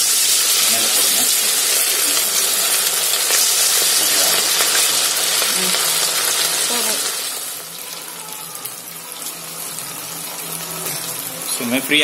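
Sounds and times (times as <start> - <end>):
food deep-frying in hot oil: 0.0 - 12.0.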